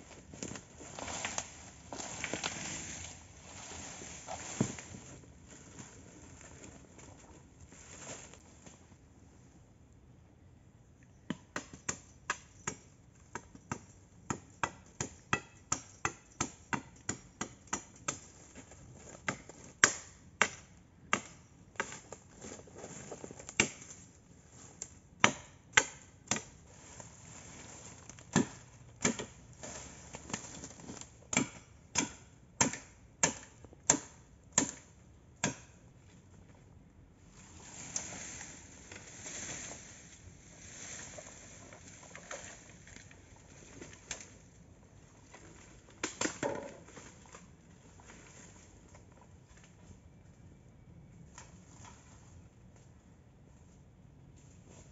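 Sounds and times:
rustle of leaves and stalks: 0:00.0 - 0:09.0, 0:26.4 - 0:28.8, 0:29.5 - 0:31.2, 0:37.2 - 0:50.0, 0:51.2 - 0:54.9
blade chopping bamboo: 0:25.2 - 0:26.5, 0:28.3 - 0:29.4, 0:31.3 - 0:35.8.

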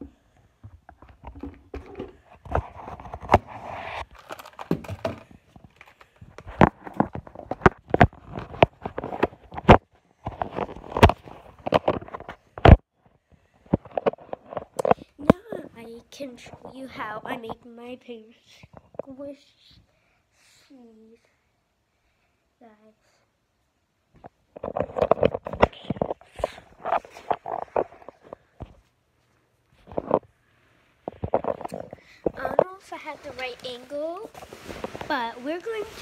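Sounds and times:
rustling against microphone: 0:24.5 - 0:36.0.

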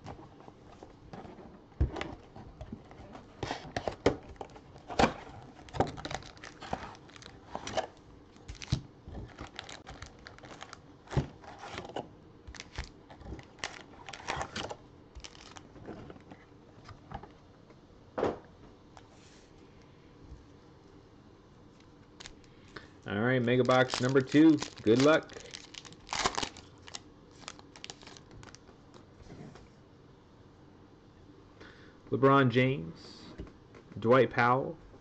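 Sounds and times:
foil packs crinkling: 0:04.4 - 0:15.7, 0:22.2 - 0:22.6, 0:23.4 - 0:28.7.

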